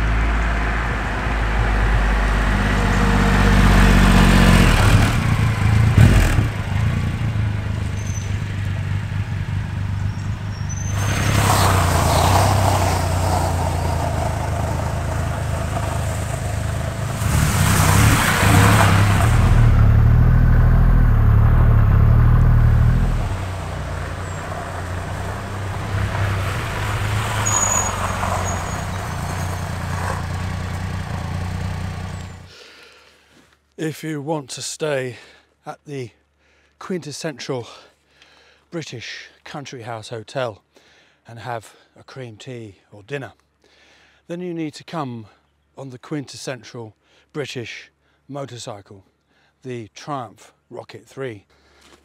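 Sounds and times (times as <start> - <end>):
motorcycle engine running: 4.2 - 10.7, 11.8 - 26.8, 29.0 - 32.5
tyres on gravel: 4.4 - 33.8, 51.6 - 52.0.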